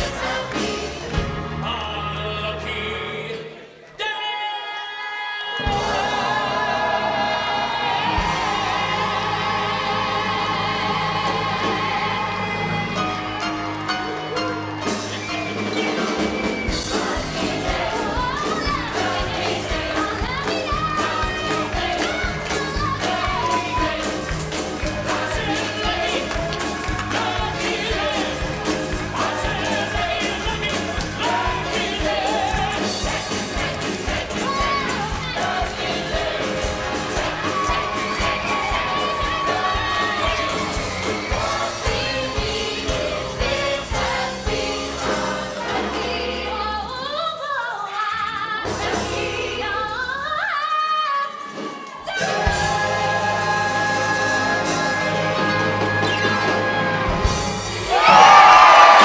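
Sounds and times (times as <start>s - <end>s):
orchestral accompaniment: 5.7s - 47.0s, 51.5s - 59.0s
band with steady beat: 14.8s - 45.7s
women singing a duet: 16.7s - 57.2s.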